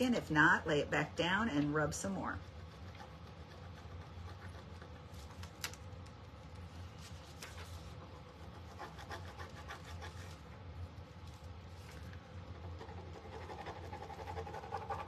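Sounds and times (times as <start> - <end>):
scratchy rubbing strokes: 6.8 - 10.5.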